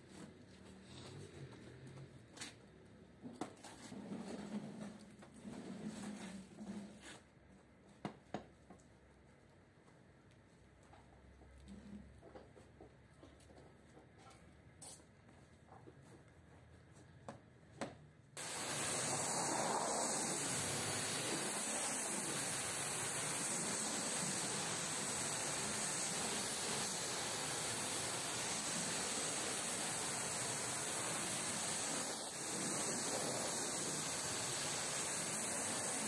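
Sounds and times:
pressure washer jet hissing: 18.4 - 36.0.

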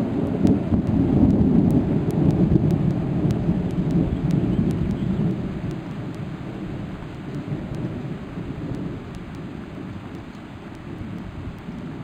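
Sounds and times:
rain hissing: 0.0 - 12.0
thunder rumbling: 0.0 - 12.0.

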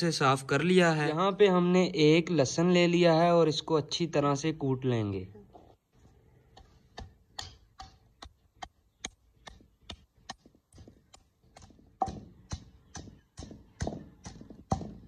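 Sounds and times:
pestle pounding in mortar: 6.6 - 15.0.

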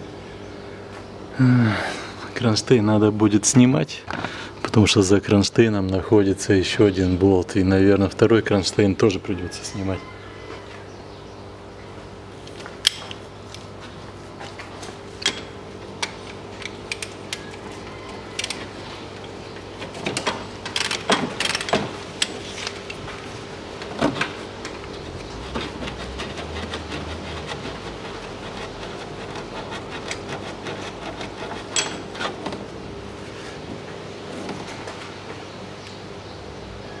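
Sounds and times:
ratchet wrench and tools clanking: 20.0 - 22.4, 31.6 - 32.4.

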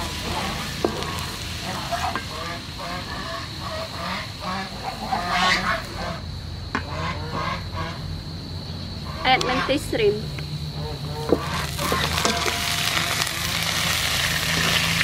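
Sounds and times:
garlic sizzling in hot oil: 0.0 - 6.1, 10.7 - 15.0
birds calling: 0.0 - 15.0.

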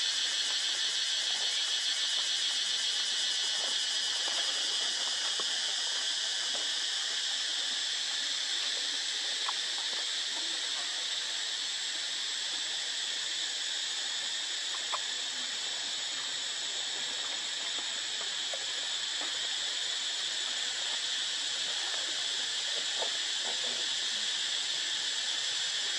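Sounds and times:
insect chirps: 0.0 - 25.9
insects chorus: 0.0 - 25.9.

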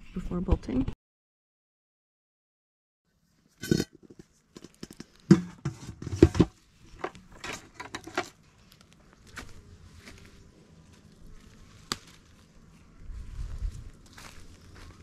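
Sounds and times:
rustling: 6.6 - 15.0
steps on wood-chip mulch: 8.5 - 15.0.

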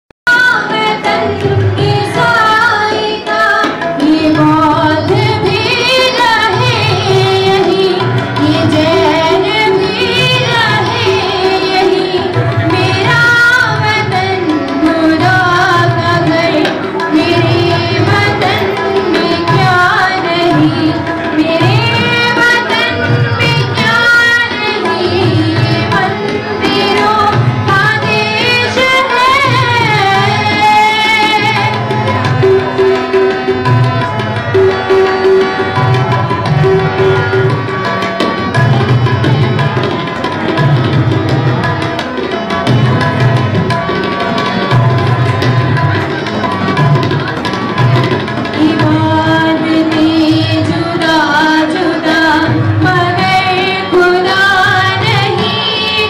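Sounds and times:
woman singing: 0.3 - 31.8, 48.6 - 56.0
harmonium: 0.3 - 56.0
tabla rhythm: 0.3 - 56.0.

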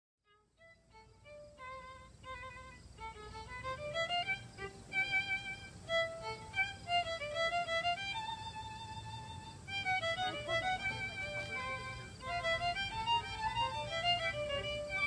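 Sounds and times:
solo violin melody: 0.2 - 15.0.

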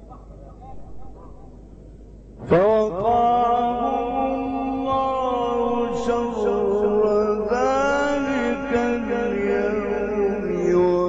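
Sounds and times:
man chanting with long notes: 2.4 - 11.0.

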